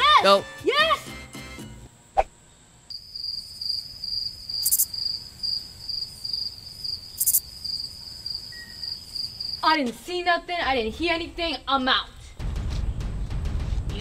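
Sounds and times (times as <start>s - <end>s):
crickets chirping: 2.5s - 9.9s.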